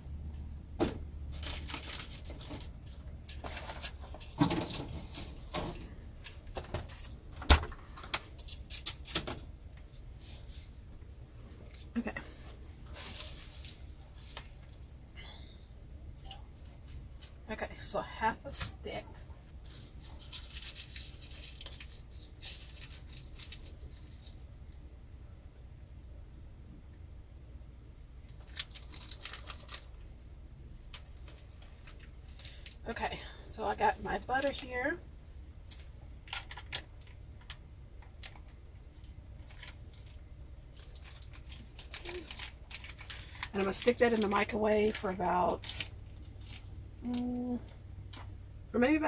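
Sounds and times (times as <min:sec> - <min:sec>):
low steady hum: 0:00.0 - 0:49.0
butter wrapper crinkling: 0:20.0 - 0:24.3, 0:28.3 - 0:30.2, 0:39.4 - 0:46.8.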